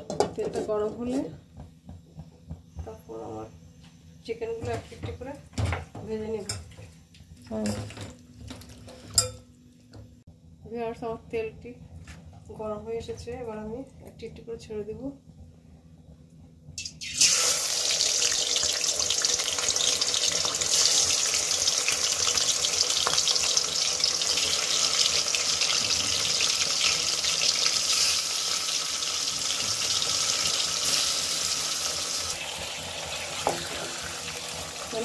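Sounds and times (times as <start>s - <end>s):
chicken sizzling in hot oil: 16.8s - 35.0s.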